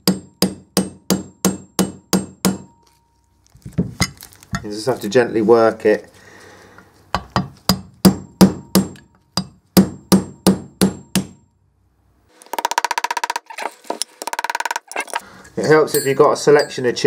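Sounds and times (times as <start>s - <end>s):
hammer striking steel chisel: 0.0s - 3.0s, 7.2s - 11.5s.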